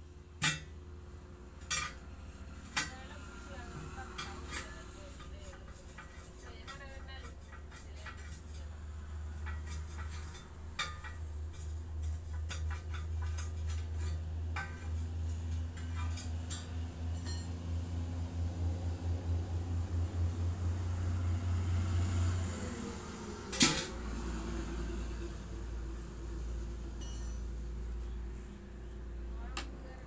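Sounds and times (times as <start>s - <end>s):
metallic clinks and knocks: 27.0s - 27.6s.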